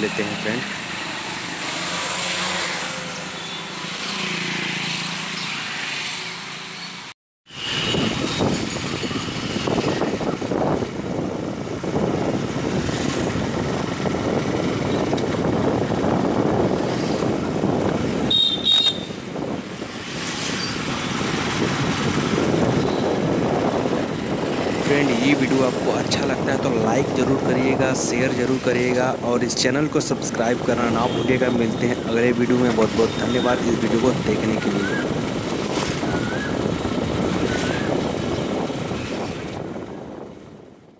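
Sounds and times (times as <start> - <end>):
wind and road noise: 0.0 - 40.9.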